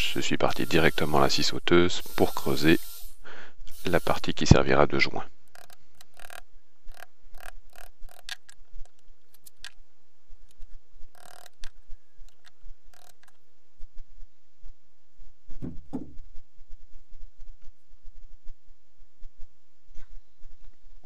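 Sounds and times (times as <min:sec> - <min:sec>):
dull knock: 0:15.6 - 0:16.2.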